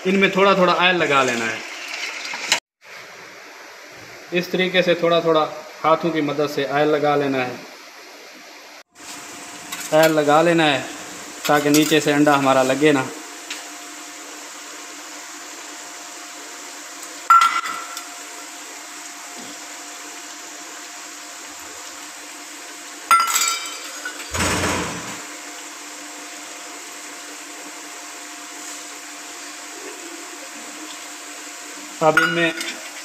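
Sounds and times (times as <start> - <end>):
metal bowls clinking on counter: 17.3 - 18.0, 23.1 - 24.3, 32.1 - 32.8.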